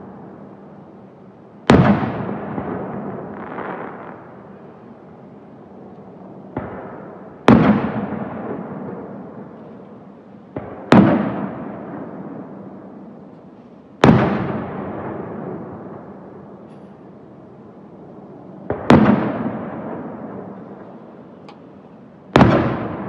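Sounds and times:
firework shells booming: 1.7s - 4.3s, 6.5s - 9.0s, 10.5s - 12.2s, 22.3s - 23.0s.

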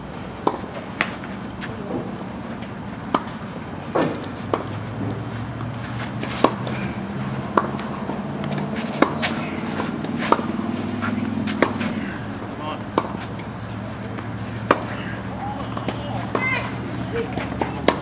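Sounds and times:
tennis ball bouncing on court: 0.4s - 1.1s, 3.1s - 5.7s, 7.5s - 13.2s
tennis ball hit by rackets: 0.4s - 1.2s, 3.1s - 6.8s, 7.4s - 13.3s, 17.4s - 18.0s
low hum: 9.3s - 14.6s.

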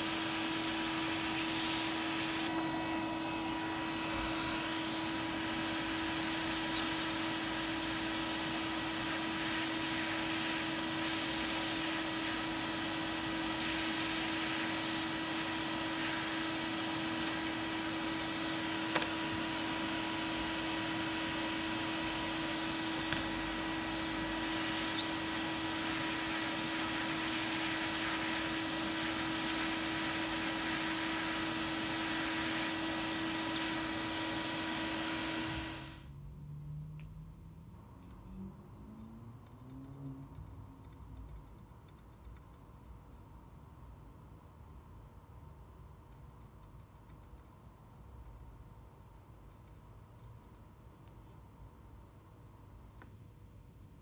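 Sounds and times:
hot air blower hiss: 0.0s - 36.1s.

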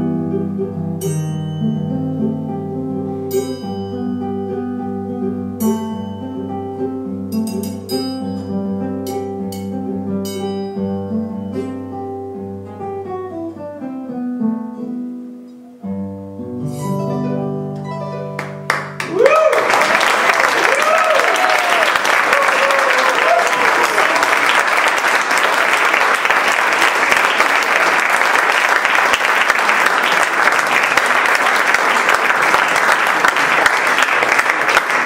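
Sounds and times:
acoustic guitar and cavaquinho playing: 0.0s - 19.1s.

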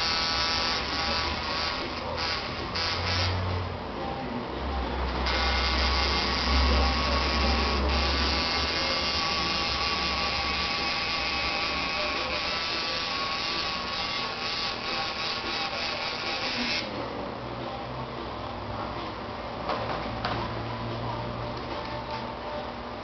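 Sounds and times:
tattoo machine buzzing: 0.0s - 3.6s, 5.1s - 16.9s.

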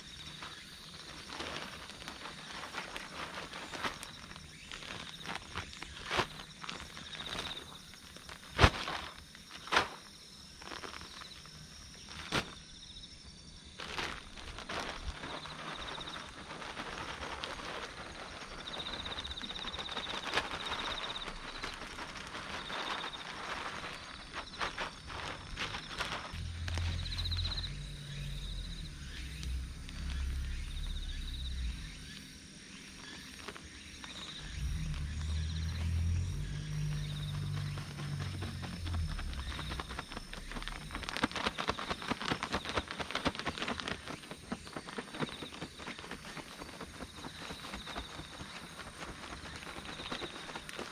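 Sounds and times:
faint insects trilling: 0.0s - 50.9s
dull thumps on soil: 8.4s - 10.1s
low rumble: 25.1s - 32.4s, 34.2s - 41.2s.

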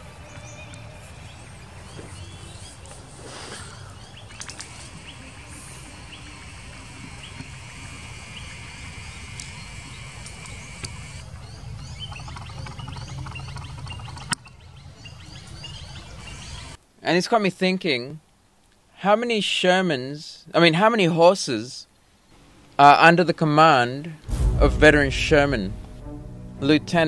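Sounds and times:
birds chirping: 0.0s - 16.8s
steady low rumble: 24.2s - 27.0s.

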